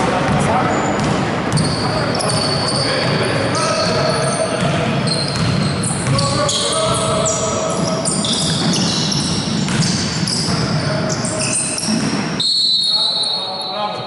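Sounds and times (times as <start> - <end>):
sneakers squeaking: 0.0 - 14.0
basketball bouncing: 0.2 - 3.2, 3.8 - 11.2.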